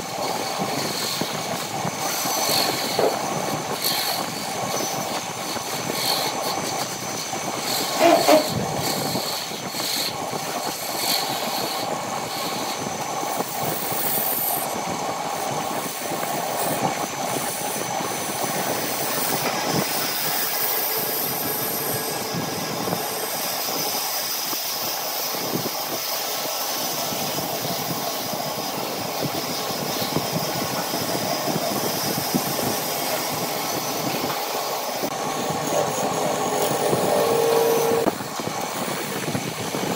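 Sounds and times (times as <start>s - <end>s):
wood lathe motor hum: 0.0s - 25.3s, 28.6s - 39.8s
gouge scraping wood: 7.7s - 9.2s, 18.7s - 23.6s.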